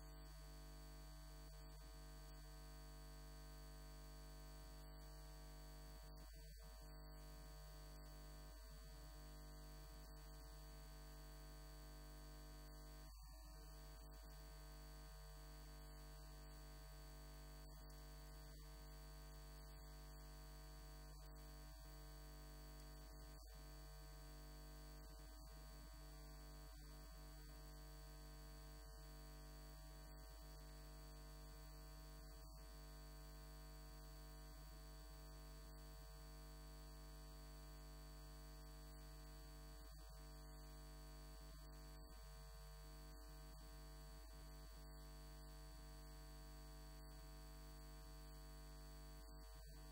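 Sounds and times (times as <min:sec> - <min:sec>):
electrical hum and buzz: 0:00.0 - 0:31.1.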